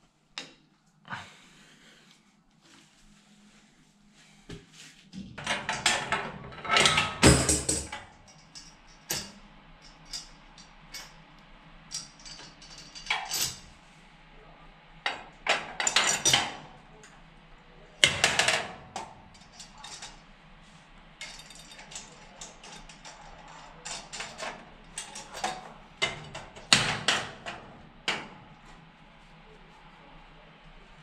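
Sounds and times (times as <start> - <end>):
metal clicks and clanks: 5.2 - 11.2, 11.9 - 13.6, 15.1 - 16.6, 18.0 - 20.2, 21.2 - 28.3.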